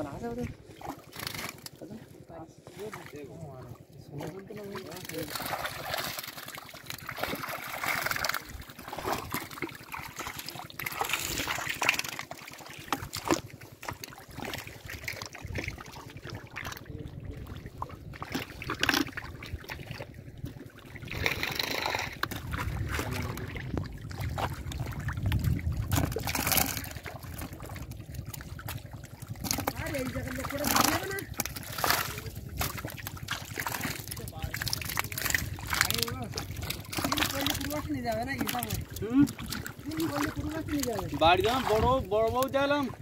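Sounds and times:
wet mud squelching: 0.0 - 43.0
hands splashing in muddy water: 4.2 - 16.9.

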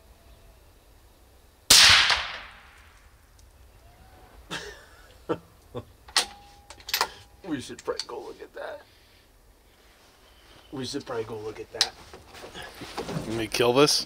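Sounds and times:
suppressed rifle shot: 1.7 - 3.0.

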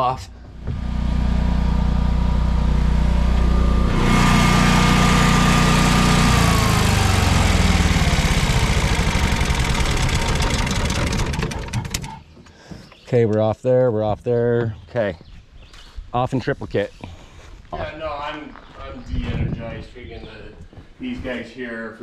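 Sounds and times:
generator engine running: 0.0 - 12.3
generator winding down: 0.4 - 12.2.

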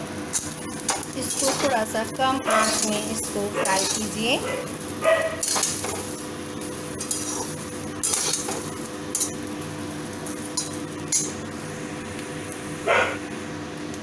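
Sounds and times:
steady low hum: 0.0 - 14.0
metal spatula scraping metal pan: 2.6 - 4.2, 7.0 - 8.5.

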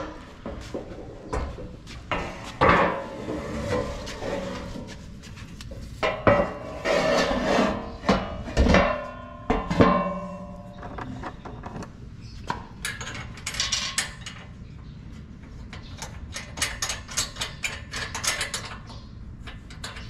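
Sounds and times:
rubbing and scraping: 2.1 - 8.7
metallic clanks on steel rack: 8.1 - 10.8.

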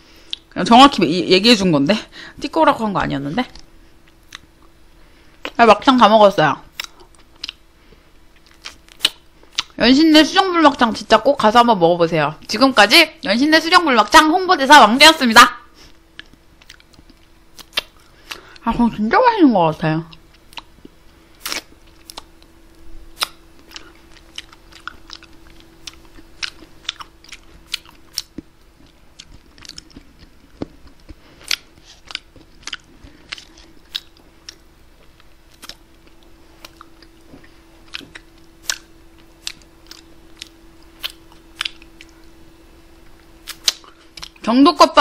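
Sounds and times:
faint steady hum: 0.0 - 45.0
mouth smacks and clicks eating: 3.5 - 4.8, 6.7 - 7.6, 8.3 - 9.8, 16.1 - 18.6, 20.1 - 22.4, 23.2 - 42.3, 43.0 - 44.4.

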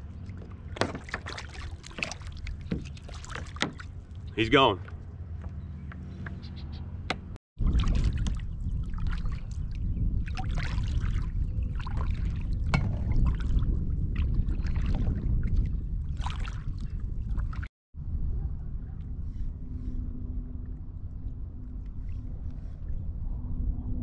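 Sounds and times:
paddle splashing in water: 0.0 - 5.4, 7.6 - 17.7
wind on microphone: 7.6 - 24.0.

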